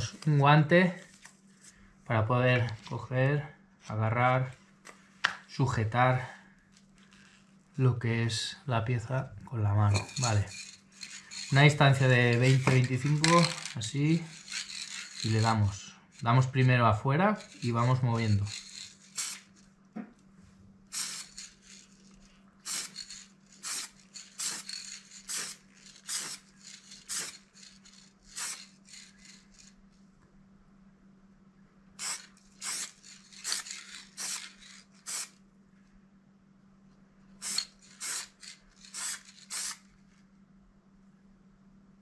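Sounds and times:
faint steady hum: 0:00.0 - 0:42.0
spray can hissing bursts: 0:10.0 - 0:15.4, 0:17.4 - 0:19.5, 0:20.9 - 0:22.0, 0:22.6 - 0:29.5, 0:32.0 - 0:35.4, 0:37.4 - 0:39.8.

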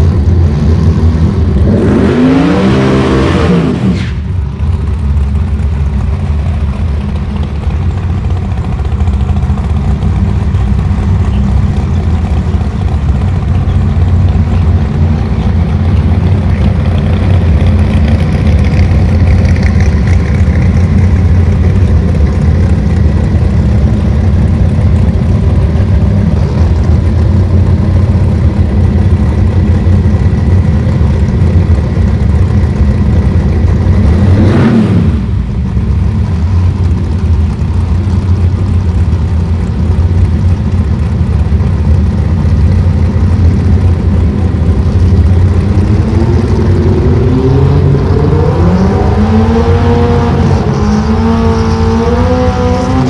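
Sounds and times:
race car engines idling: 0:00.0 - 0:01.8, 0:04.0 - 0:53.0.

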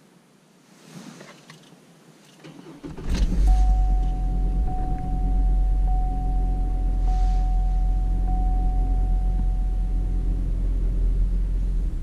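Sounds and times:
car engine starting and idling: 0:02.4 - 0:12.0
thin high tone: 0:03.4 - 0:11.6.

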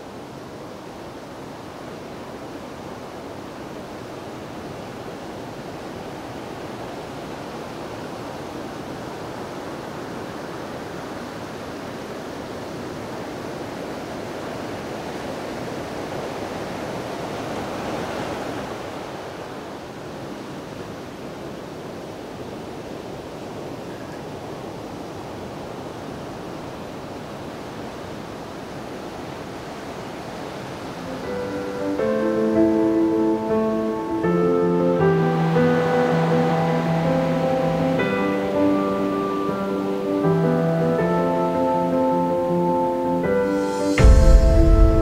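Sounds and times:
steady rushing noise: 0:30.9 - 0:45.0.

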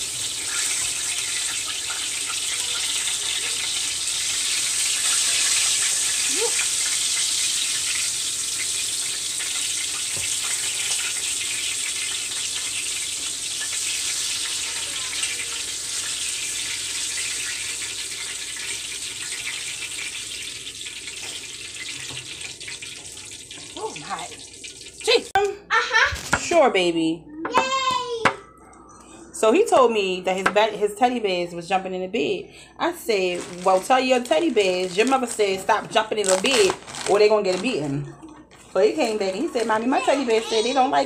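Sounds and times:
food sizzling in hot oil: 0:00.0 - 0:25.3.

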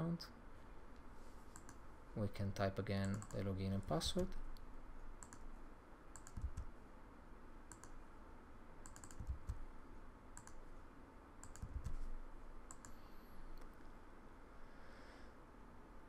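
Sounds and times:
mouse clicks: 0:01.5 - 0:01.8, 0:03.0 - 0:03.4, 0:05.2 - 0:05.5, 0:06.1 - 0:06.7, 0:07.7 - 0:08.0, 0:08.8 - 0:09.6, 0:10.4 - 0:10.6, 0:11.4 - 0:12.1, 0:12.7 - 0:13.0
keyboard keystrokes: 0:03.0 - 0:03.4, 0:06.2 - 0:06.7, 0:08.8 - 0:09.6, 0:10.4 - 0:10.6, 0:11.4 - 0:12.0.

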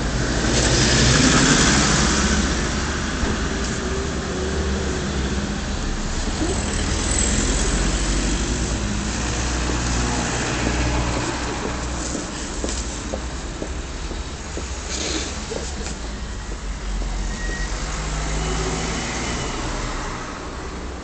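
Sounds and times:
low rumble of road traffic: 0:00.0 - 0:21.0
car passing: 0:06.4 - 0:20.6.

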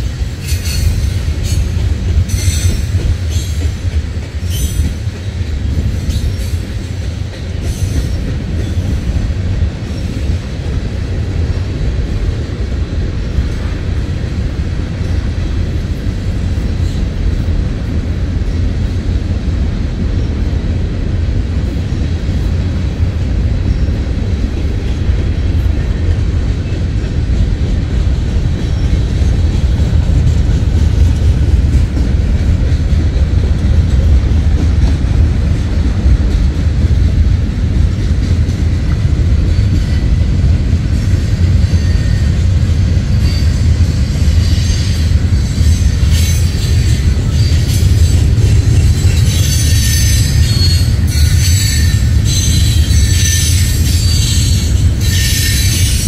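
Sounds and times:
freight train wheels rumbling on rail: 0:00.0 - 0:56.0.

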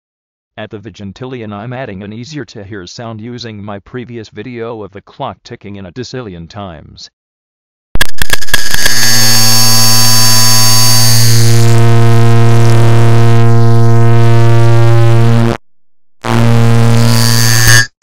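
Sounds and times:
harsh buzzing drone: 0:08.0 - 0:15.6, 0:16.2 - 0:18.0.

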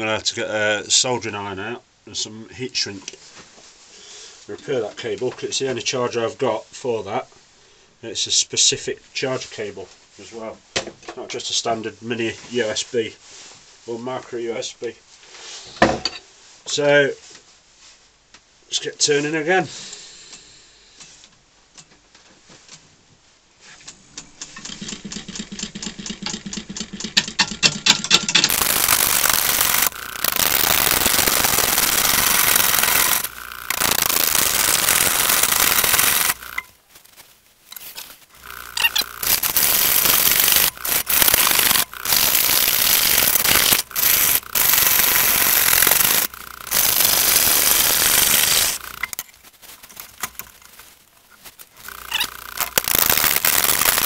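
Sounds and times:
lathe tool cutting wood: 0:28.5 - 0:36.6, 0:38.4 - 0:49.2.

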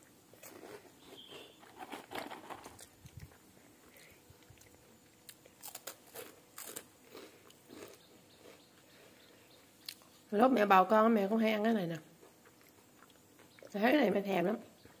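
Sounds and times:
crunchy snack being chewed: 0:00.3 - 0:09.2, 0:12.2 - 0:13.7.

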